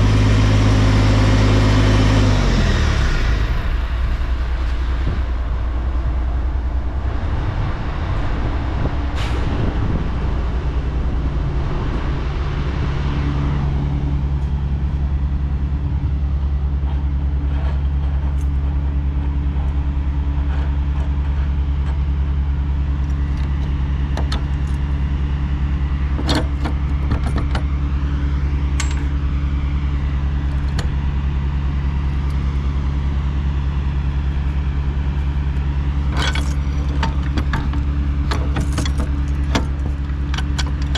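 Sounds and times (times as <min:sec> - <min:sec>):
road noise rushing: 0:00.0 - 0:21.4
truck diesel engine droning: 0:00.0 - 0:40.9
sharp clicks and rattles: 0:26.1 - 0:27.9, 0:35.5 - 0:40.9.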